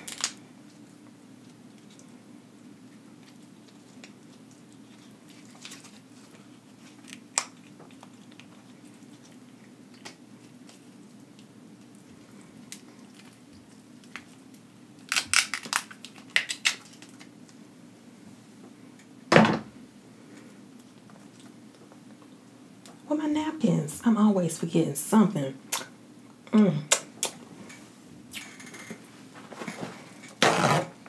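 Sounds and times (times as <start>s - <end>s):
crab shell cracking: 0.0s - 0.8s, 6.9s - 10.8s, 14.0s - 17.6s
low steady hum: 0.0s - 31.0s.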